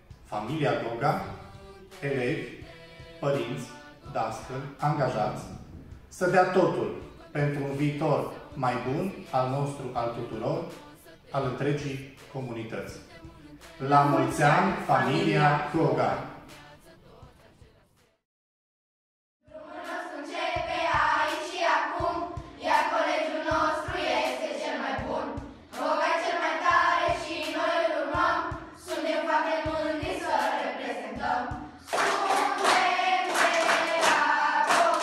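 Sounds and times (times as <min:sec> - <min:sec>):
children singing: 0:19.5 - 0:35.0
children clapping in rhythm: 0:27.3 - 0:27.7, 0:30.0 - 0:30.7, 0:31.5 - 0:35.0.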